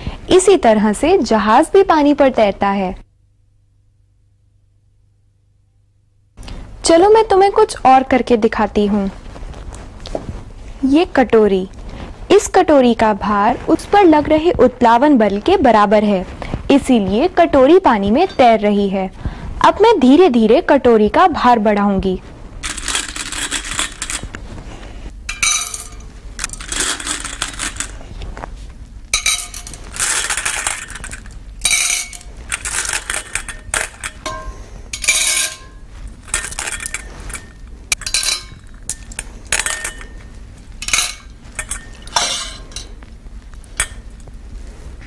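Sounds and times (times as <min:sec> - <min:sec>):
metal pieces clinking into steel bowl: 0:22.6 - 0:24.3, 0:25.3 - 0:28.0, 0:29.2 - 0:43.0, 0:43.8 - 0:44.1.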